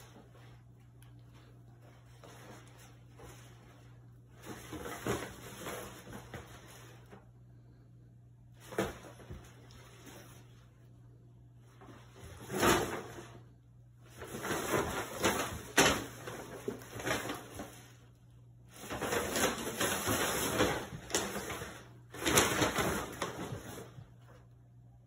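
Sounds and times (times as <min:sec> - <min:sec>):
paper bag crackling on wood floor: 0:14.1 - 0:18.1, 0:18.7 - 0:24.3.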